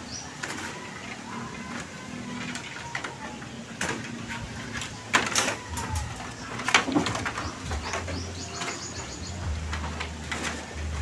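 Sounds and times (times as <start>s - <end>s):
bird calling: 0.0s - 10.6s
bamboo poles knocking: 3.8s - 10.6s.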